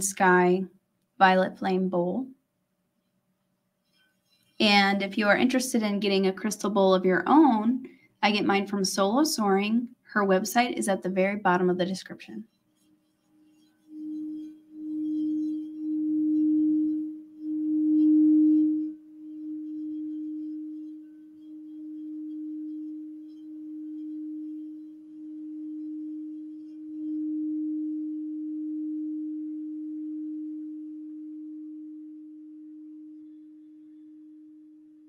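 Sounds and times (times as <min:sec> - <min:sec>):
singing bowl tone: 0:12.4 - 0:35.0
wand rubbing bowl rim: 0:12.7 - 0:25.2.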